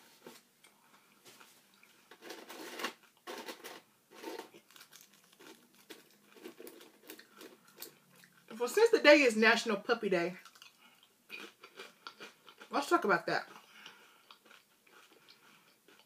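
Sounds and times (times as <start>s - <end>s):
crunching of chips being chewed: 1.7s - 8.6s, 10.4s - 12.8s, 13.4s - 16.0s.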